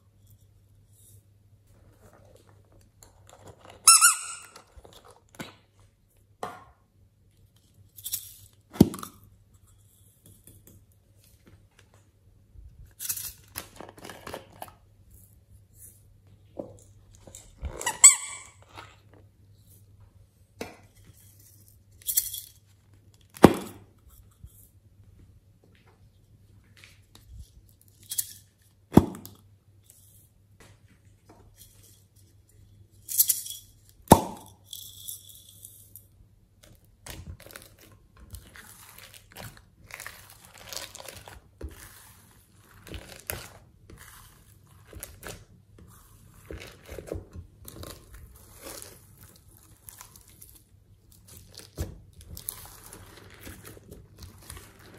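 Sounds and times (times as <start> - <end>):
squeeze toys squeaking: 3.8 - 4.7, 17.6 - 18.8.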